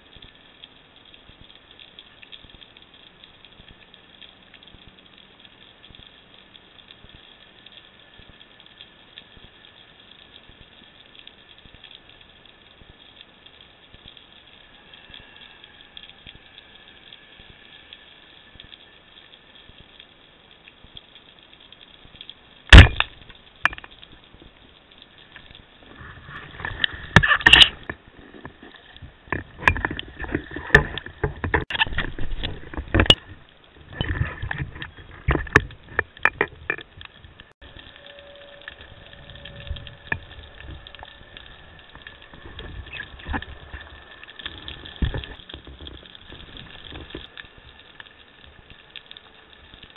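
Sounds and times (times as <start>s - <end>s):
underwater knocks and rattles: 22.7s - 24.8s, 25.4s - 38.0s, 38.7s - 48.0s.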